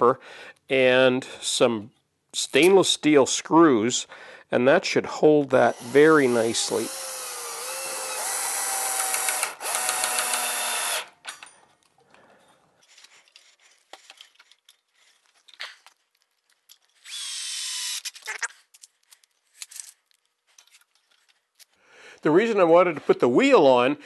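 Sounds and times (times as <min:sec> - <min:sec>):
cordless drill driving screws: 0:05.6 - 0:11.2, 0:17.0 - 0:18.3.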